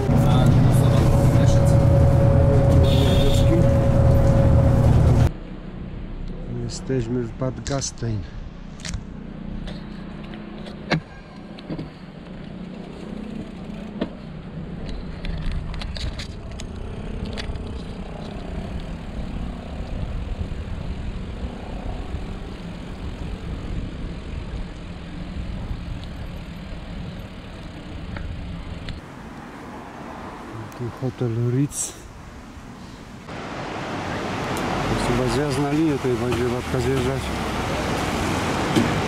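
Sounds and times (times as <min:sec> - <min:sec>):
wind rumbling on microphone: 0:14.5 - 0:29.0
tyres rolling on wet asphalt: 0:33.3 - 0:39.0.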